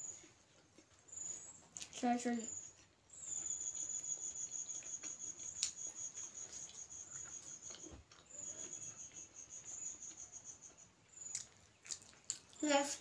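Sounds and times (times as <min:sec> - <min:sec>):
faint chewing and mouth clicks: 0:00.0 - 0:13.0
cricket trilling: 0:02.4 - 0:11.5.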